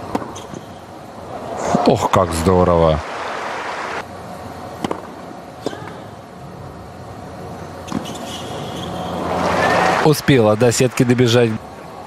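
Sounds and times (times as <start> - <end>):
tennis ball struck: 4.8 - 5.1
crowd applause: 9.2 - 11.6.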